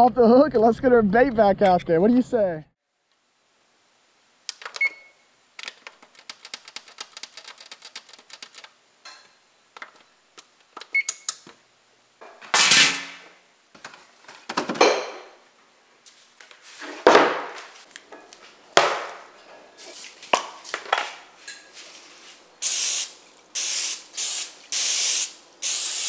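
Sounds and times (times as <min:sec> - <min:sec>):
oven control panel beeps: 0:04.8 - 0:05.2, 0:10.9 - 0:11.4
fast clicks of buttons: 0:05.6 - 0:08.7.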